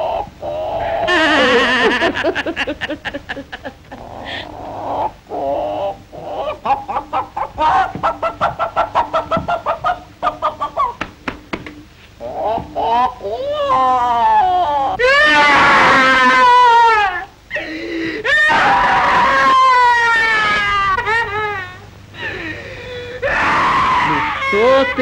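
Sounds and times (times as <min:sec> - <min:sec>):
woman crying and wailing: 0:00.8 - 0:04.6, 0:12.2 - 0:25.0.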